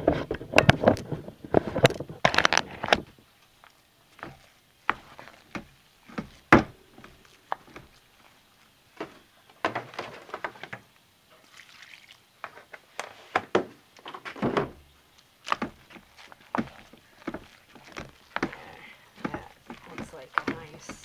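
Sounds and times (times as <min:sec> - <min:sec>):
spoon scraping through thick paste: 0:03.6 - 0:08.7, 0:15.4 - 0:21.0.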